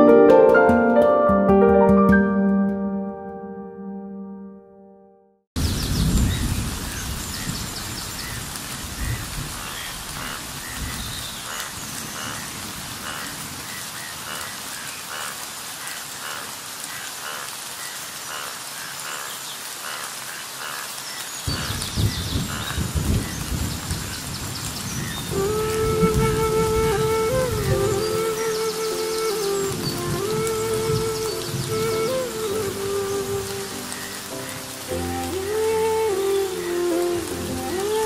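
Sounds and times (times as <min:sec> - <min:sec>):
low rumble of thunder: 0:05.6 - 0:14.4, 0:21.5 - 0:28.0
rain falling on foliage: 0:05.6 - 0:38.0.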